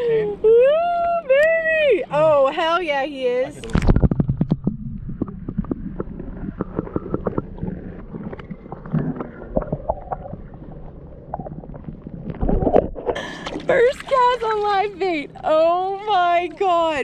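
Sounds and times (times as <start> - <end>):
muffled underwater river gurgle: 3.6 - 15.5.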